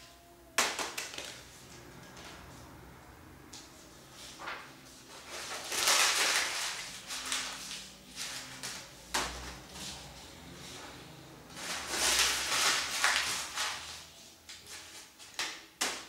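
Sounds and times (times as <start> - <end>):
paper being crumpled: 4.2 - 10.0, 11.5 - 16.0.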